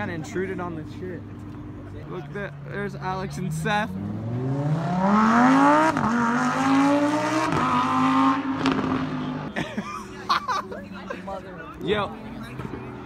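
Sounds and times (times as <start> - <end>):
car engine accelerating: 0.6 - 9.6.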